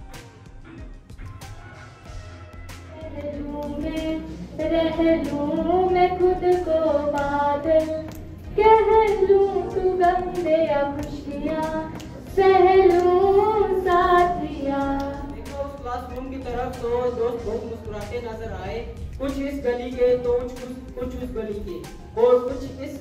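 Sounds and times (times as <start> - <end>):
light regular beat: 0.0 - 23.0
high singing voice: 2.9 - 15.5.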